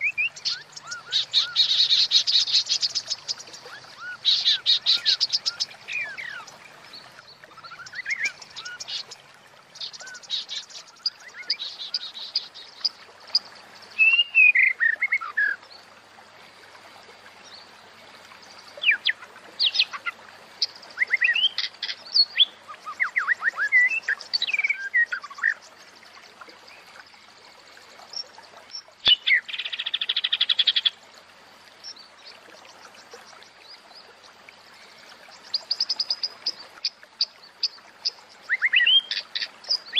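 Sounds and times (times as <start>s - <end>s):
bird whistles and chirps: 14.0s - 15.6s, 38.5s - 39.9s.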